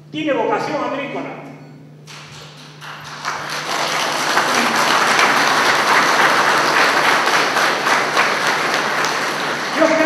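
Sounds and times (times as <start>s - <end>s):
audience applauding: 2.1s - 10.0s.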